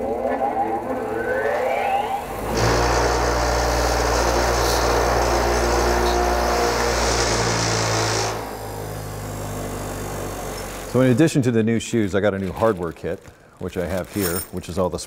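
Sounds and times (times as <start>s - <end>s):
grinder motor whine: 0.0s - 11.2s
wire wheel scrubbing metal: 2.4s - 8.5s.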